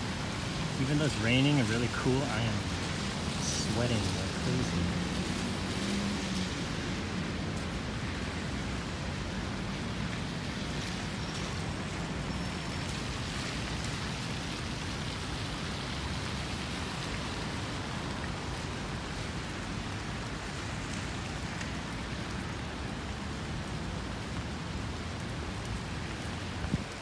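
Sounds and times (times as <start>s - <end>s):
rain falling: 0.0s - 27.0s.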